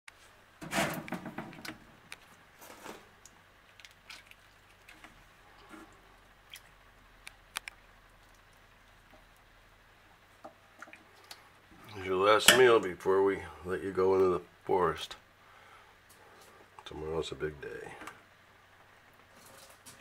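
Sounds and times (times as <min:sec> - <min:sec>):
turtle shells clicking on tank: 0:06.5 - 0:08.5.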